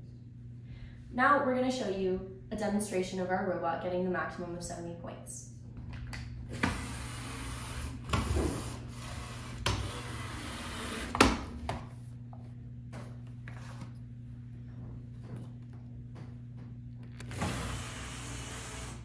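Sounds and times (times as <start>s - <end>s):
robot motors whirring: 17.0s - 19.0s.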